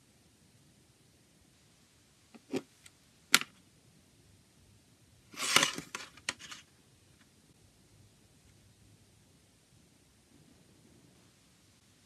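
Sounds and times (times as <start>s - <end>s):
plastic case scraping: 5.4s - 6.6s.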